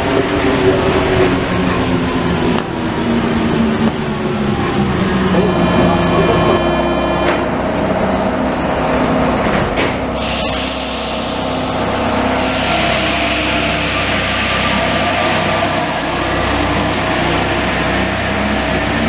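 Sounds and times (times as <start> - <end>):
train hum: 0.0 - 19.0
train doors shutting click: 6.2 - 7.6, 9.4 - 10.8
loud hiss of released air: 10.2 - 11.8.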